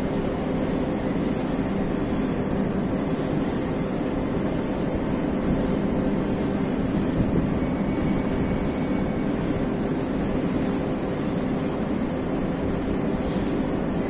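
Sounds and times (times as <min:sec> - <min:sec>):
industrial machinery drone: 0:00.0 - 0:14.0.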